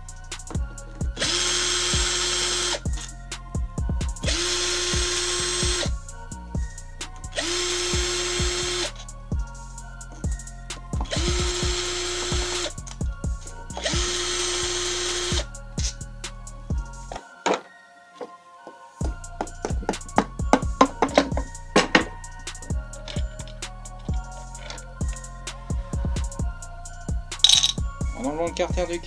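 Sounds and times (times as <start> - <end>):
electric screwdriver whining: 1.2 - 2.8, 4.2 - 5.9, 7.4 - 8.9, 11.1 - 12.8, 13.8 - 15.4.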